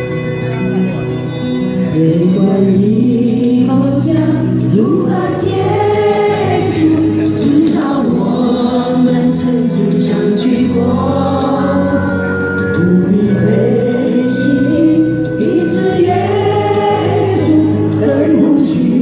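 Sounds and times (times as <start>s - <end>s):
mixed choir singing folk song: 4.7s - 12.2s, 13.1s - 19.0s.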